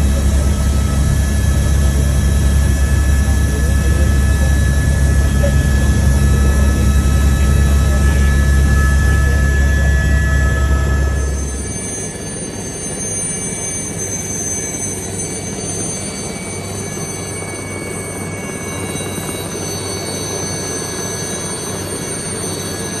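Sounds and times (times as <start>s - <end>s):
helicopter turbine engine whine: 0.0s - 23.0s.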